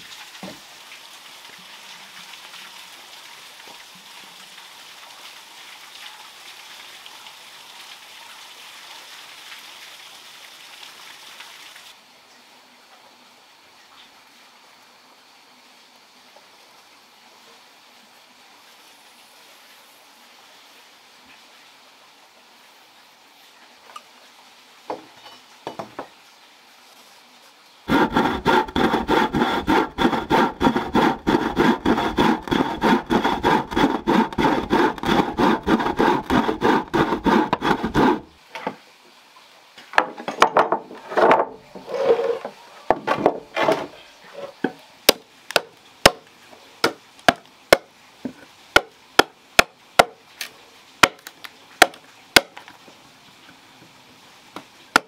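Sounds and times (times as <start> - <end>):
hand saw cutting wood: 27.9 - 38.3
blade chopping wood: 28.0 - 38.2, 45.1 - 46.2, 51.0 - 52.6
scrapes: 41.0 - 42.6.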